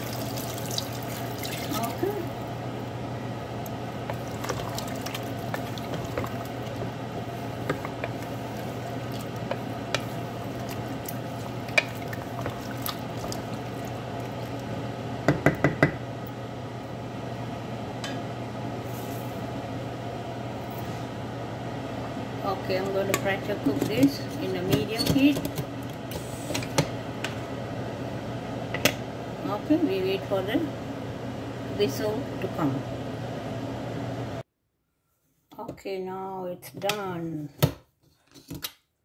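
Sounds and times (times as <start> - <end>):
steady low hum: 0.0 - 34.5
wooden spoon stirring in a pot: 4.0 - 14.6.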